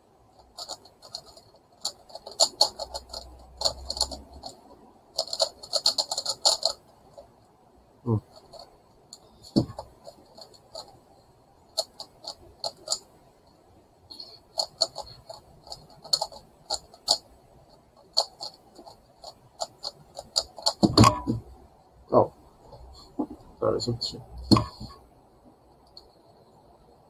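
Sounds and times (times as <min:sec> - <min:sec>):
plastic puzzle faces clacking: 0:00.4 - 0:07.3, 0:08.1 - 0:11.0, 0:11.7 - 0:13.1, 0:14.1 - 0:21.6, 0:24.4 - 0:25.0.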